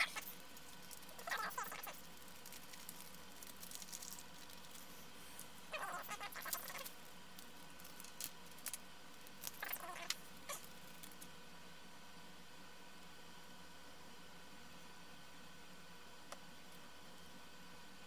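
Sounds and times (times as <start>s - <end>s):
plastic bags rustling: 0.0s - 9.7s.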